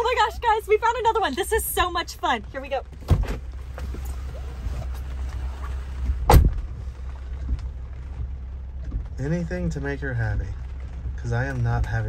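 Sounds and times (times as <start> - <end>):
car engine idling: 0.0 - 12.0
car door opening clunk: 2.9 - 6.8
car door slamming: 2.9 - 6.8.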